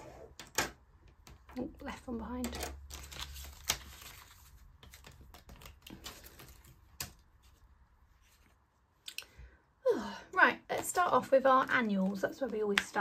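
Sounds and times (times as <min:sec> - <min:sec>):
banknotes crinkling and rustling: 0:01.3 - 0:08.8, 0:10.7 - 0:13.0.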